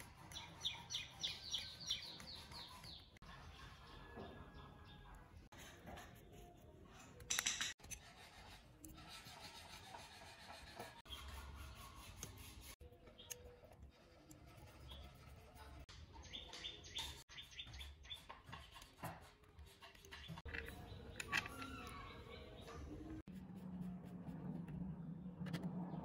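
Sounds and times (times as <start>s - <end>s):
screwdriver scraping and clicking: 19.8s - 21.9s.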